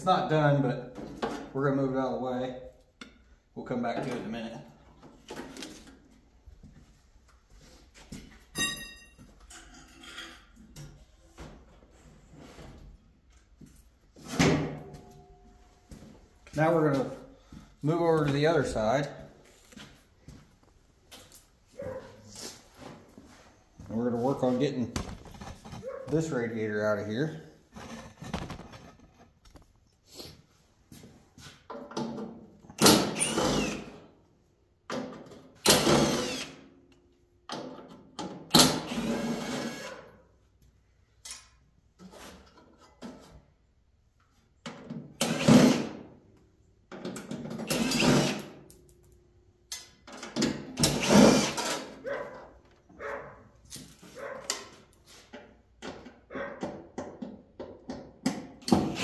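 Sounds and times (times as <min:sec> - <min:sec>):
drill-driver removing screws: 0:32.8 - 0:34.0, 0:35.6 - 0:36.6, 0:38.5 - 0:40.0, 0:45.2 - 0:45.9, 0:47.6 - 0:48.6, 0:50.8 - 0:51.9, 0:58.6 - 0:59.0.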